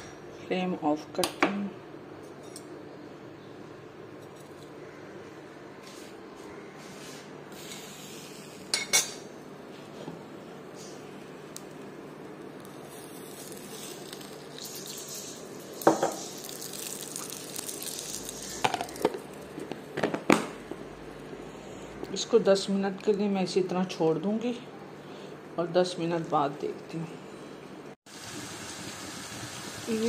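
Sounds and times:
oil sizzling on hot coal: 11.7s - 19.4s, 28.1s - 30.0s.

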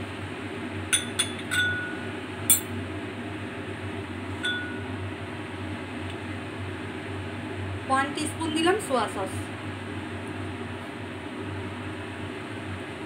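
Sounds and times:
glass bowls clinking: 1.0s - 2.7s, 4.4s - 4.8s.

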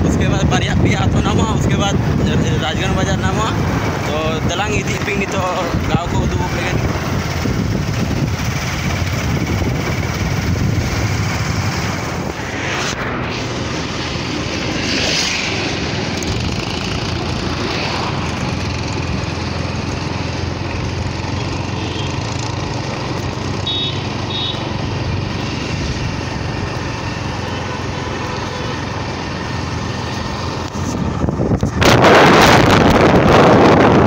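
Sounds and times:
wind noise: 0.0s - 21.2s, 29.5s - 34.0s
motorcycle engine running: 5.0s - 12.3s, 16.0s - 32.2s.

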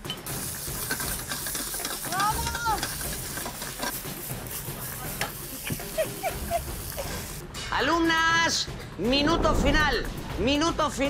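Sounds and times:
cooking utensils knocking: 0.0s - 4.1s
octopus sizzling in a pan: 0.2s - 7.4s.

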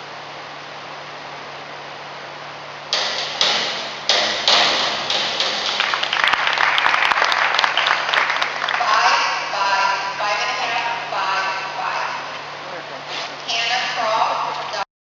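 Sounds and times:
diving board bangs: 3.0s - 6.4s
people clapping: 4.6s - 9.2s.

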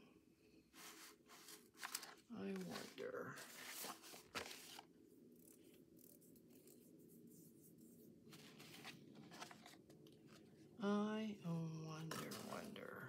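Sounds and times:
low room hum: 0.0s - 13.0s
paper rustling: 0.8s - 4.9s, 8.3s - 10.5s.

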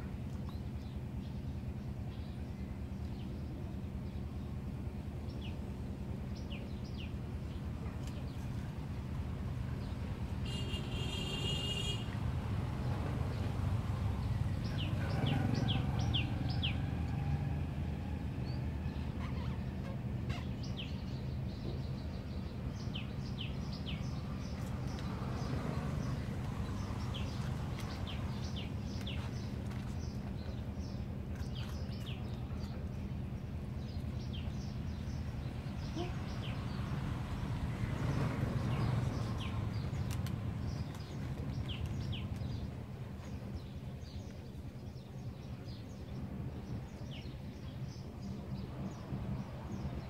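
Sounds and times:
small birds chirping: 6.3s - 8.8s, 9.4s - 12.1s, 18.4s - 50.0s.

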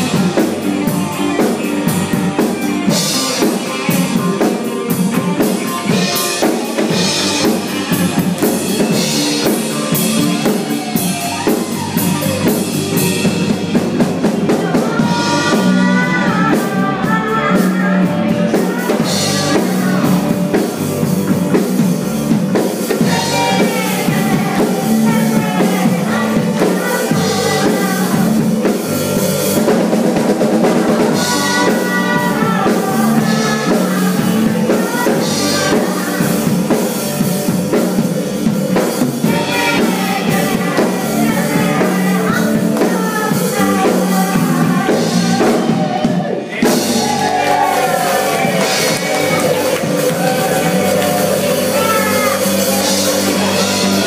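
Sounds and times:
live country-rock band: 0.0s - 54.0s
woman singing: 14.3s - 20.6s, 22.9s - 28.8s, 30.6s - 36.9s, 39.2s - 54.0s.

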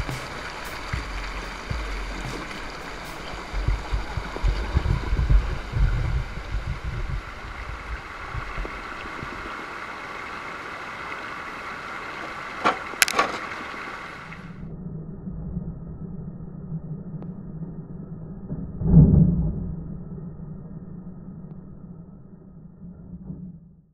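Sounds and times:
low rumbling bumps: 0.0s - 9.6s
creek water rushing over rocks: 0.0s - 14.6s.

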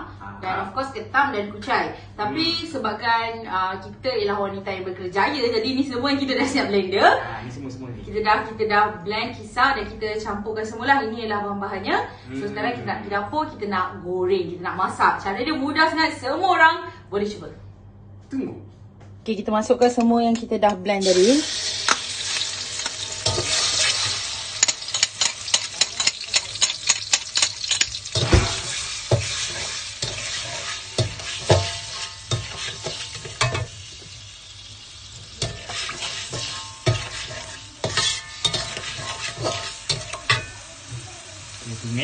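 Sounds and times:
paste sizzling in hot oil: 21.0s - 42.0s
spatula scraping a wok: 21.8s - 34.1s, 35.2s - 40.9s.

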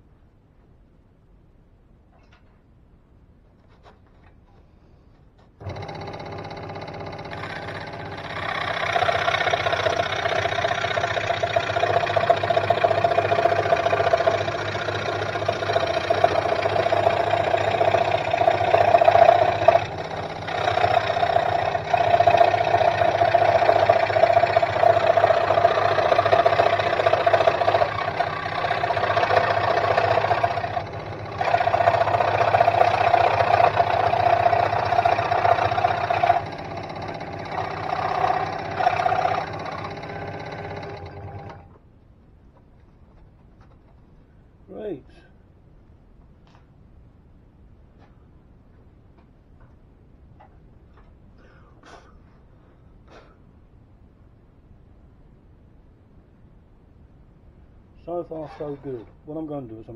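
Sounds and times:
saw blade cutting plywood: 5.6s - 41.7s, 58.3s - 59.2s
scroll saw motor hum: 5.6s - 41.8s, 58.2s - 59.2s.

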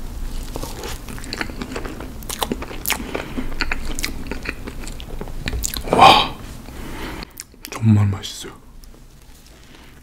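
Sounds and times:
person chewing cake: 0.2s - 6.4s, 7.2s - 7.8s
mouth clicks and smacks: 3.6s - 6.0s, 7.2s - 7.8s.

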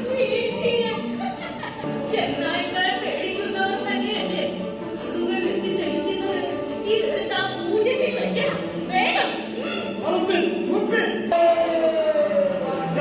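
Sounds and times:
musical accompaniment: 0.0s - 13.0s
group of voices singing: 11.3s - 13.0s.

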